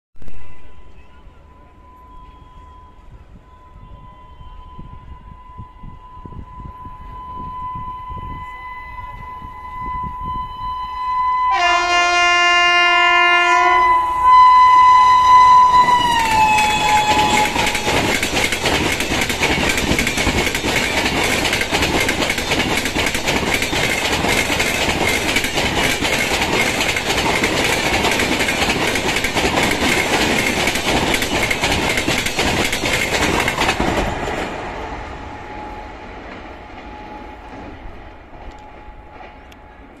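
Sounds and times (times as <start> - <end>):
train horn: 0.3 - 18.2
train wheels clattering on rail: 15.7 - 40.0.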